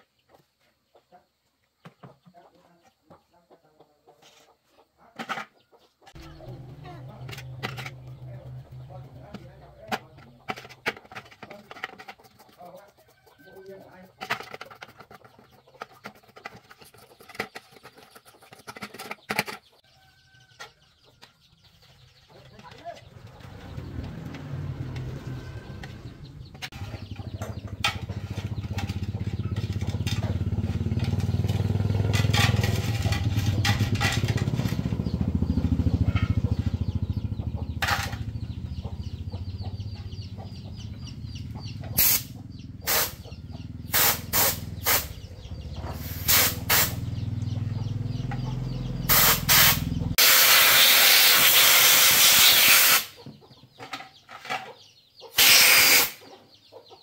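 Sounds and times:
compressed air blasts: 42.0 - 43.3, 43.9 - 45.2, 45.9 - 47.0, 49.0 - 53.2, 55.4 - 56.2.

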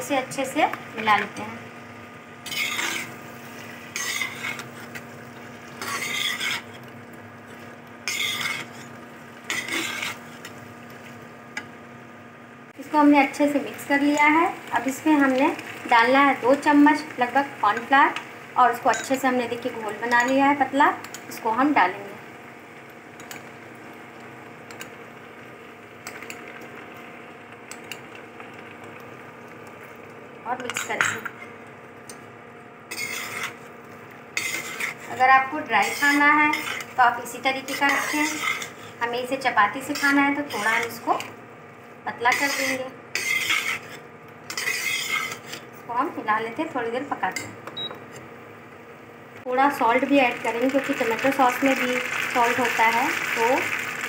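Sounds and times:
spatula scraping a wok: 2.4 - 6.9, 7.5 - 11.2, 32.9 - 41.3, 42.2 - 45.8.

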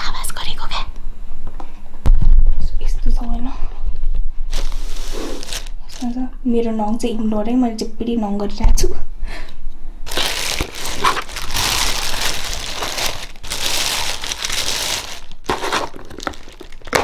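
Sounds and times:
plastic bag crinkling: 4.5 - 6.2, 10.1 - 17.0.

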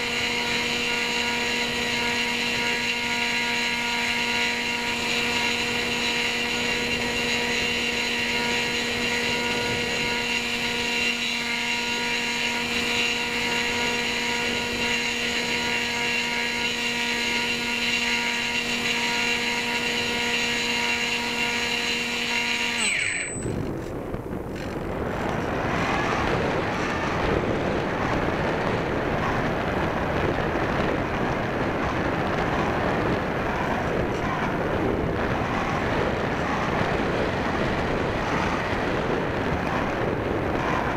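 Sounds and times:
electric motor whine: 0.0 - 40.9
wind rushing past airframe: 22.8 - 40.9.

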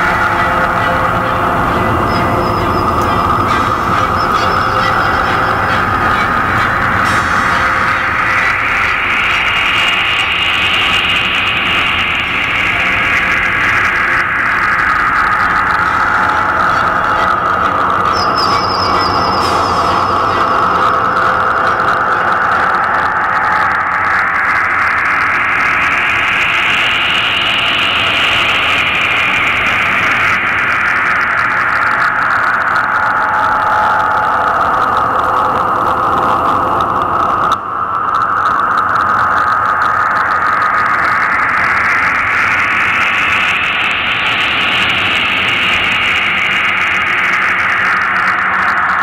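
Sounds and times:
loud steady hissing: 0.0 - 32.2.

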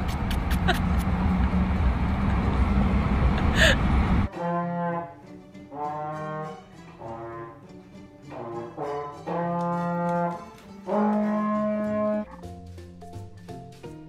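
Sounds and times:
brass instrument held notes: 4.3 - 7.7, 8.3 - 12.3.

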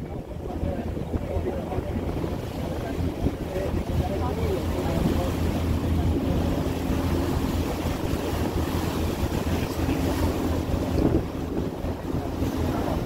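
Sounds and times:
ferry engine humming: 0.0 - 13.0
water washing past hull: 0.0 - 13.0
wind buffeting microphone: 0.0 - 13.0.

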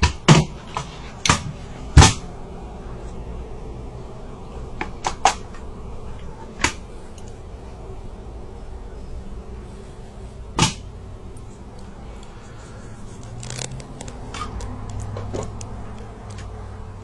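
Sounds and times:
low steady hum: 0.0 - 17.0
sharp loud knock: 10.6 - 10.8.

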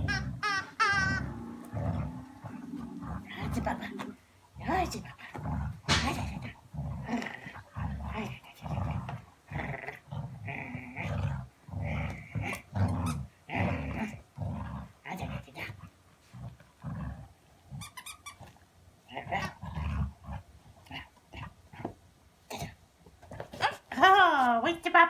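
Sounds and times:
dog play-growling: 0.0 - 23.9.

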